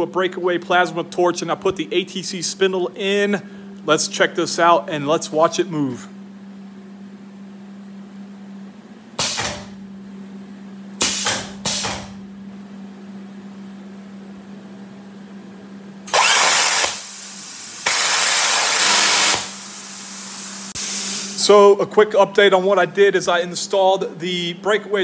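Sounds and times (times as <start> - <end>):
steady hum: 0.0 - 25.0
plasma cutting arc hissing: 9.2 - 9.8, 11.0 - 12.2, 16.1 - 21.4
pneumatic cylinder air hisses: 9.2 - 9.8, 11.0 - 12.2, 16.1 - 21.4.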